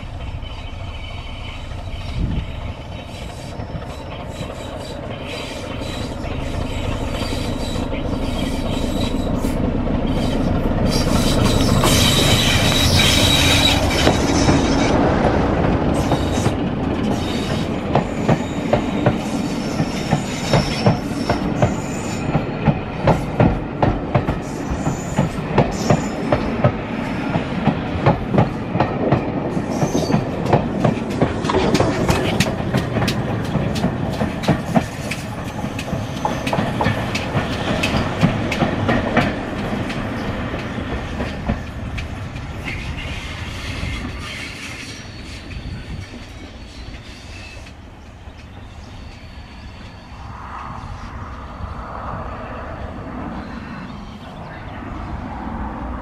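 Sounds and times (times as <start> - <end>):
train wheels clickety-clack: 0.0 - 50.0
diesel locomotive passing: 0.0 - 56.0
high-pitched squeal: 0.3 - 15.1, 48.6 - 54.7.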